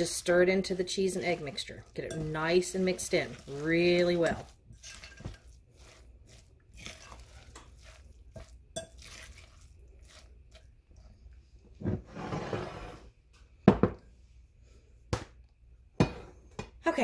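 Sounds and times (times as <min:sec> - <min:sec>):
fork scraping glass bowl: 0:01.0 - 0:10.7
glassware knocking on counter: 0:13.7 - 0:14.0.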